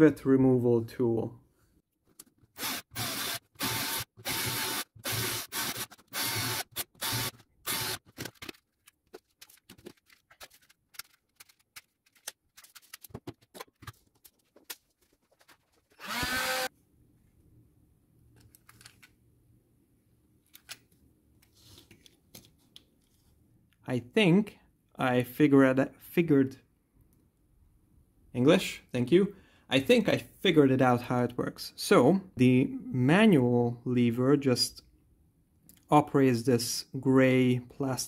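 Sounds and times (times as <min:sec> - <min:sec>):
cordless drill whirring: 0:02.6 - 0:08.0, 0:16.0 - 0:16.7
plastic parts clicking and rattling: 0:06.8 - 0:16.0, 0:18.3 - 0:19.2, 0:20.4 - 0:21.0.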